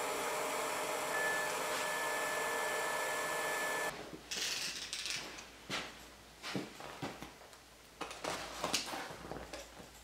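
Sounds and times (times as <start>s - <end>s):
milling machine motor running: 0.0s - 3.9s
thin high whine: 0.0s - 3.9s.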